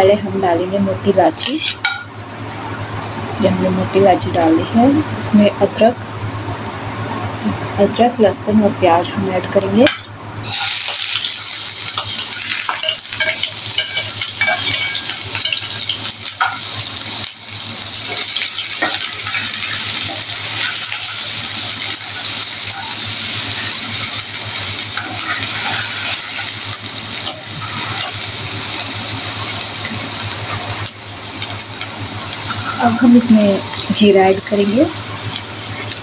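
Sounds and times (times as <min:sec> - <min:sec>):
onion sizzling in hot oil: 0:09.6 - 0:36.0.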